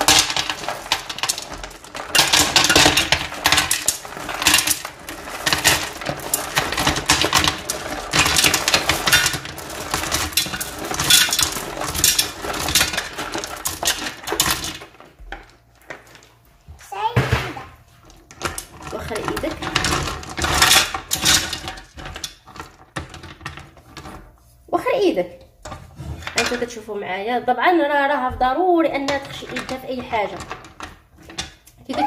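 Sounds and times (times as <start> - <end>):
stones clattering in metal pot: 0.0 - 16.3, 17.2 - 24.3, 25.6 - 26.9, 27.8 - 32.0.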